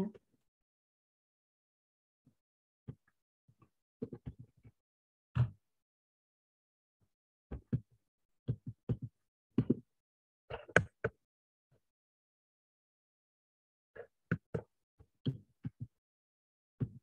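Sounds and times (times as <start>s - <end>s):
muffled thumps and taps: 8.5s - 9.8s, 15.2s - 15.9s, 16.8s - 17.0s.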